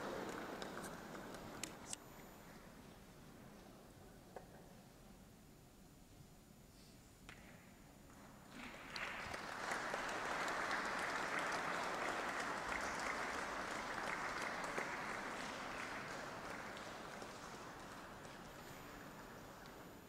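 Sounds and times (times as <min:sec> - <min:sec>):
audience applauding: 0:00.0 - 0:01.6, 0:08.5 - 0:20.0.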